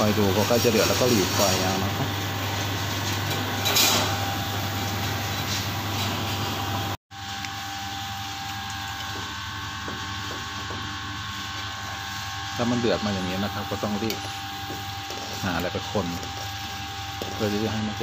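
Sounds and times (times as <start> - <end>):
gas stove burner rushing: 0.0 - 7.0.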